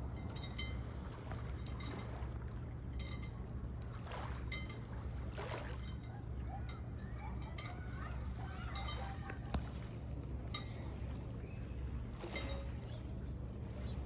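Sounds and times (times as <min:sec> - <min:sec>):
water splashes: 0:00.0 - 0:06.4, 0:07.4 - 0:14.0
small waves lapping on stones: 0:05.2 - 0:05.8.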